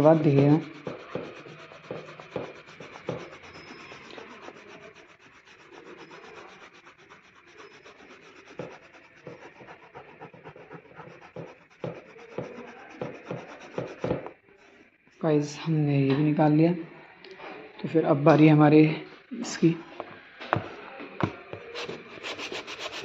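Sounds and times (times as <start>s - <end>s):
sandpaper rubbing on plastic: 0.0s - 14.3s, 21.8s - 23.0s.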